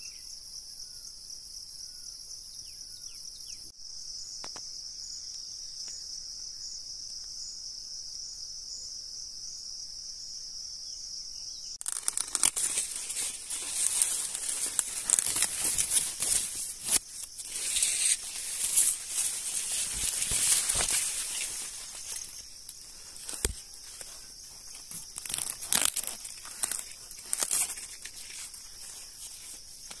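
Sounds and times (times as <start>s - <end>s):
high-pitched insect chorus: 0.0s - 30.0s
leaves rustling against microphone: 11.8s - 30.0s.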